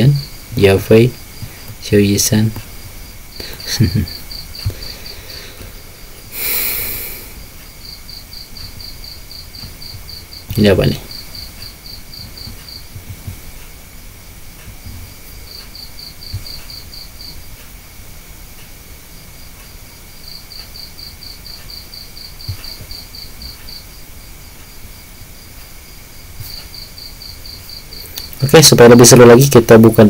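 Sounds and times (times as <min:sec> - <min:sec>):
insect chirping in pulses: 0:00.0 - 0:30.0
steady high whine: 0:00.0 - 0:30.0
soft low thumps: 0:08.6 - 0:13.6.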